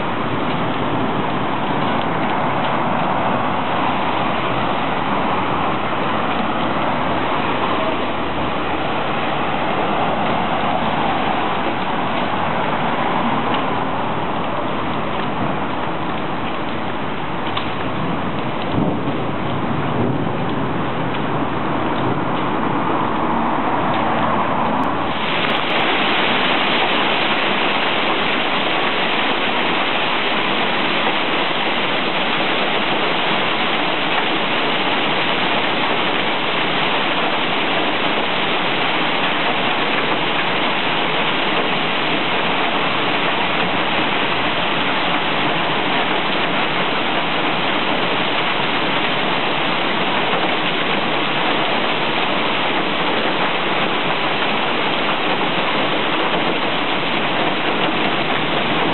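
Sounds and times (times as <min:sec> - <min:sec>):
hailstones pelting street and cars: 0:00.0 - 0:58.9.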